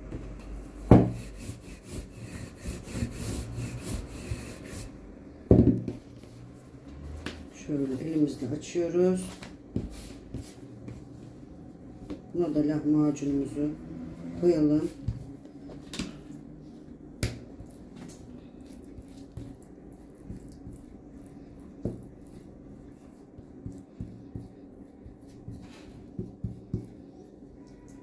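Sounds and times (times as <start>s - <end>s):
steady low hum: 0.0s - 28.0s
hands and utensil tapping dough: 17.2s - 18.2s, 23.3s - 27.0s.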